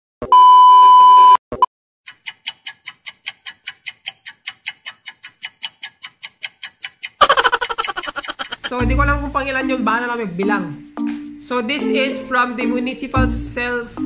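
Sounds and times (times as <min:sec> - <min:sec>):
rapid clock ticking: 0:02.1 - 0:10.6
music: 0:08.7 - 0:14.0.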